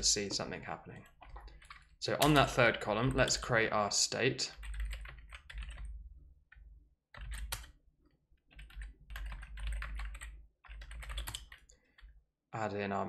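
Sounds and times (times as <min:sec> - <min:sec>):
typing on computer keyboard: 0:01.0 - 0:03.4, 0:04.5 - 0:07.8, 0:08.5 - 0:12.1.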